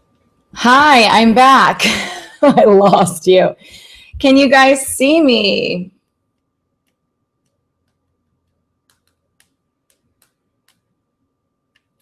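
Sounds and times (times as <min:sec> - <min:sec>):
fingertips tapping a touchscreen: 0:06.0 - 0:11.0, 0:11.7 - 0:12.0.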